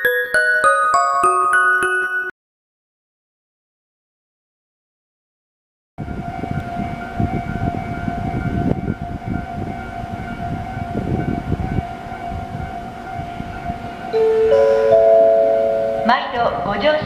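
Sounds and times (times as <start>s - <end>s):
level crossing warning bell: 0.0s - 2.3s, 6.0s - 17.0s
train wheels rumbling on rails: 6.0s - 17.0s.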